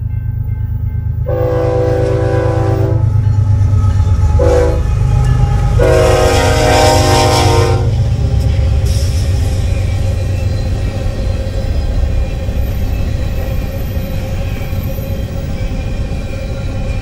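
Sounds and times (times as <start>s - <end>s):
low rumble of train: 0.0s - 17.0s
locomotive air horn blasts: 1.2s - 3.2s, 4.4s - 5.0s, 5.6s - 8.0s.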